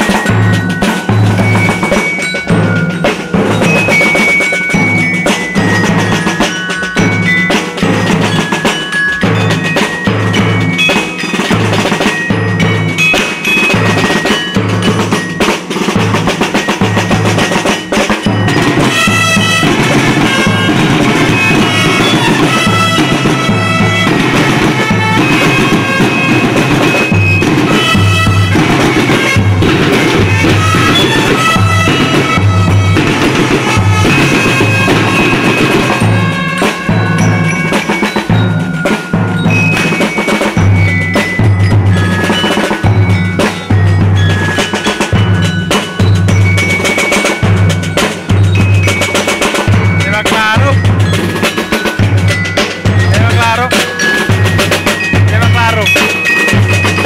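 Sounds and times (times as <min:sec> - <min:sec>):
high melody: 0:00.0 - 0:57.0
loud drum beat: 0:00.0 - 0:57.0.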